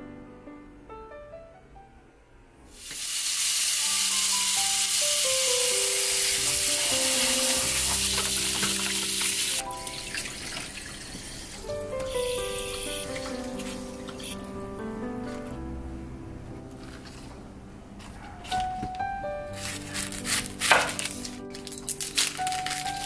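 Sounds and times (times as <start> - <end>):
soft piano music: 0.0 - 2.7, 3.6 - 23.0.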